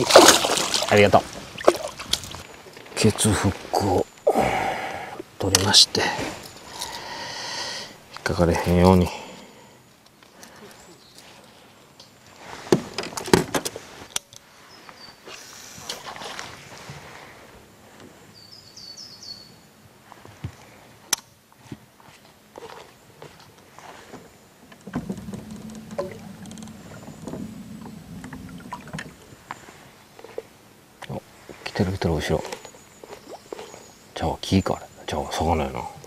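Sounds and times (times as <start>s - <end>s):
low steady hum: 24.6s - 31.5s.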